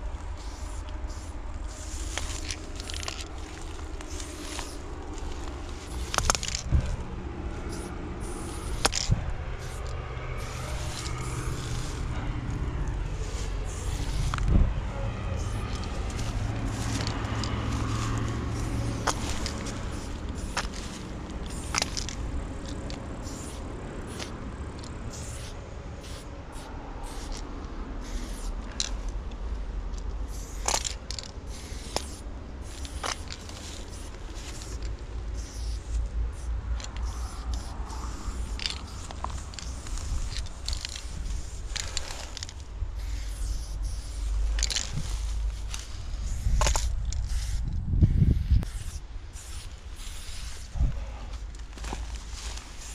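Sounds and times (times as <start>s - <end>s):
spray paint can hissing: 0.0s - 29.2s, 30.2s - 52.9s
low rumble: 0.0s - 30.4s.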